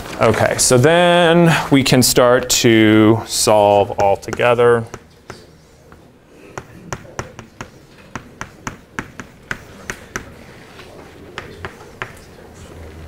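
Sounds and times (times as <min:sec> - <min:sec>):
chalk tapping on blackboard: 0:03.9 - 0:10.4, 0:11.3 - 0:12.3.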